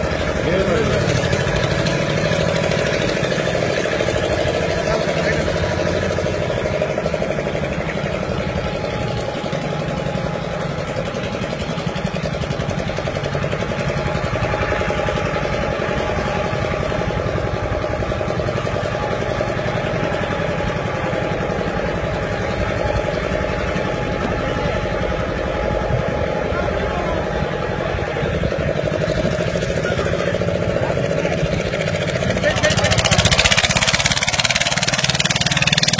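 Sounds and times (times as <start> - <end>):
engine chugging: 0.0 - 35.9.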